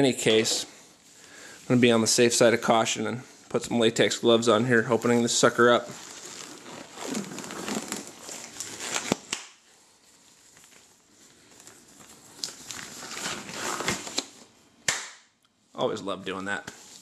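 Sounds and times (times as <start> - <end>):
latex gloves rustling: 0.2 - 14.6
glove snapping: 9.0 - 9.6, 14.1 - 15.3.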